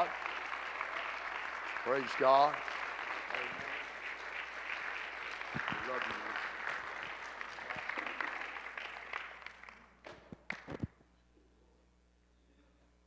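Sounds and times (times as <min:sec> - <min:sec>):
congregation applauding: 0:00.0 - 0:10.9.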